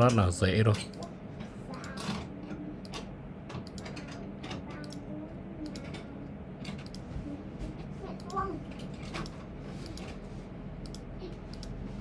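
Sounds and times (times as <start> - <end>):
low steady hum: 0.0 - 12.0
computer mouse clicking: 2.8 - 4.2, 4.8 - 5.0, 6.8 - 7.1, 10.8 - 11.8.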